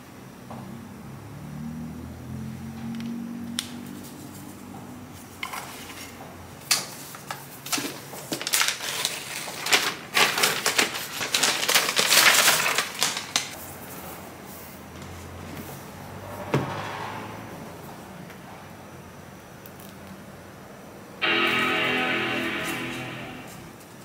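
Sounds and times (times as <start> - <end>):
plastic wrap crinkling: 7.8 - 13.6.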